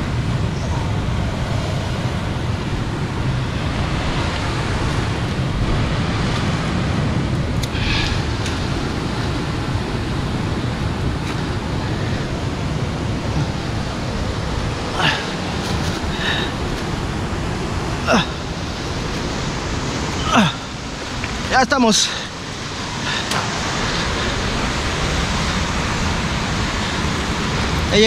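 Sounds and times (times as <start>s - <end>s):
wind on microphone: 0.0s - 21.6s
surf breaking on rocks: 0.0s - 28.0s.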